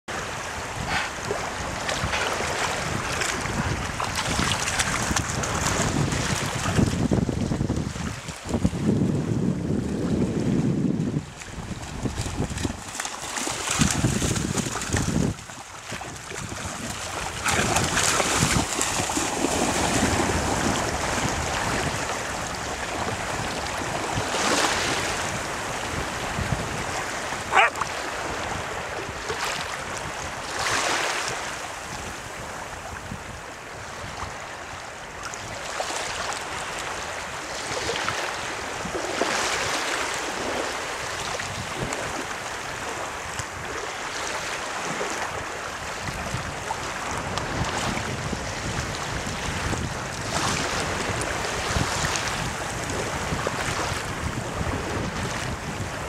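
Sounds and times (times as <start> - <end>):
wind gusting on microphone: 0.1 - 34.8, 36.8 - 56.0
seawater sloshing: 11.5 - 23.2
dog splashing through water: 11.8 - 21.9.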